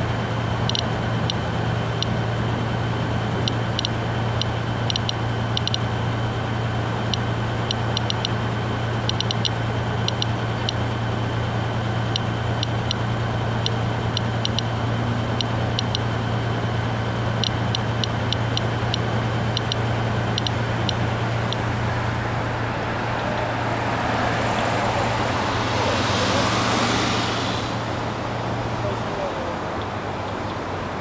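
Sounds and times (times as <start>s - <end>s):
steady low hum: 0.0s - 26.0s
geiger counter clicks: 0.7s - 1.4s, 3.4s - 5.9s, 7.1s - 8.4s, 9.0s - 10.8s, 12.1s - 14.7s, 15.3s - 16.1s, 17.4s - 21.7s
car passing: 20.2s - 31.0s.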